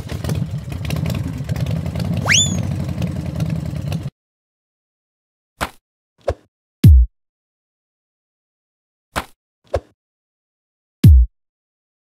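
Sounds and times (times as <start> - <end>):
engine idling: 0.0 - 4.1
rising whistle: 2.2 - 2.7.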